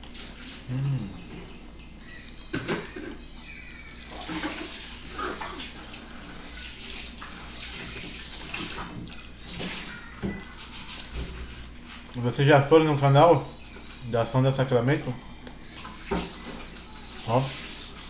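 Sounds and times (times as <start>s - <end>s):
person chewing food: 0.0s - 2.5s, 3.1s - 12.2s.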